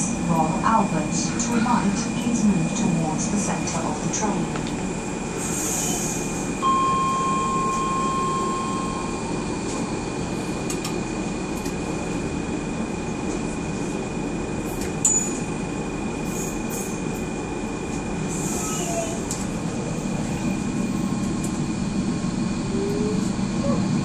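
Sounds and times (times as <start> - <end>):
train rumbling on track: 0.0 - 24.0
high whine: 6.5 - 10.0.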